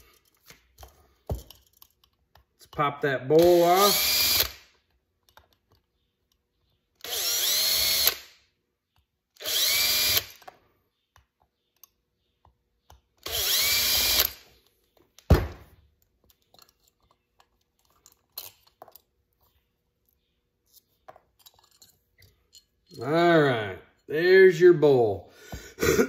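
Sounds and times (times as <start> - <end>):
small metal parts clicking: 0.0 - 2.7, 16.0 - 23.1
cordless drill whining: 3.4 - 4.6, 7.0 - 8.3, 9.4 - 10.5, 13.2 - 14.5.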